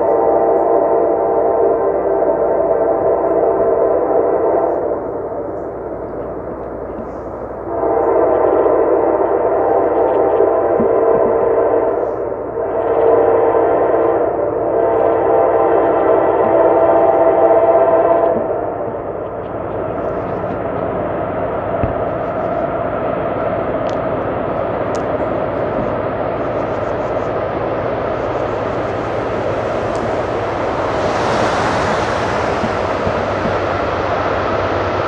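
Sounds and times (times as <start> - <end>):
locomotive horn blasts: 7.6 - 18.5, 25.6 - 34.1.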